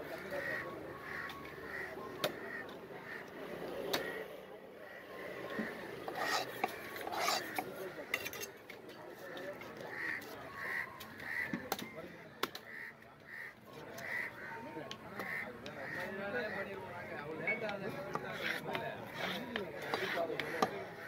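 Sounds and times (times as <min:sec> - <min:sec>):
knife scraping fish scales: 0:06.0 - 0:08.5, 0:18.1 - 0:20.2.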